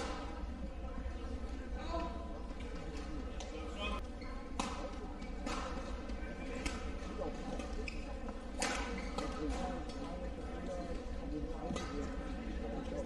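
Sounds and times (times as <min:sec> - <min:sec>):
rackets hitting shuttlecock: 0:04.5 - 0:06.9, 0:08.6 - 0:09.9.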